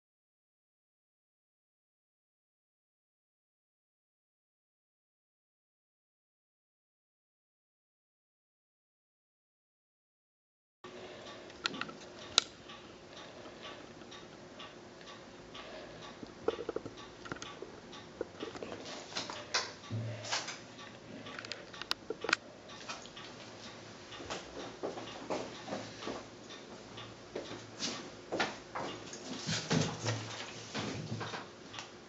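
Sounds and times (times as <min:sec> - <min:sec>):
small clicks and taps: 0:16.0 - 0:29.2.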